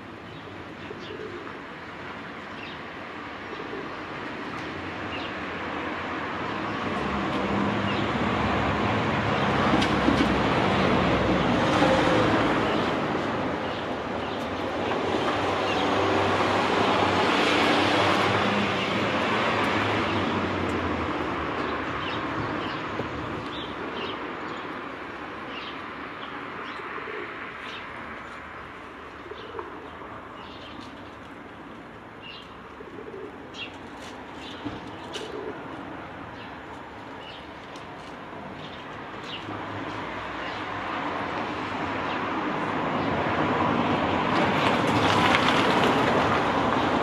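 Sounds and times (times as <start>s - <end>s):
pigeon cooing: 0.8s - 1.6s, 3.5s - 4.1s, 26.8s - 27.8s, 29.2s - 30.0s, 32.7s - 33.8s, 35.1s - 35.8s.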